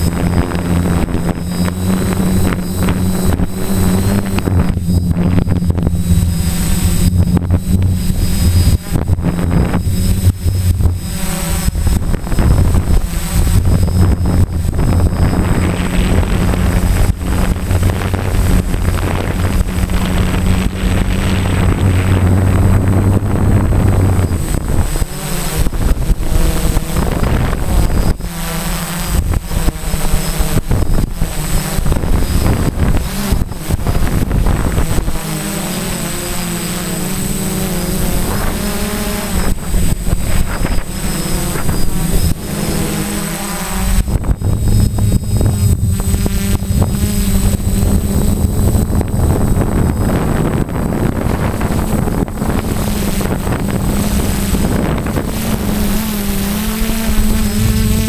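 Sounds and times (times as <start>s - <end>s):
drone motors humming: 0.0s - 58.0s
wind buffeting microphone: 0.0s - 58.0s.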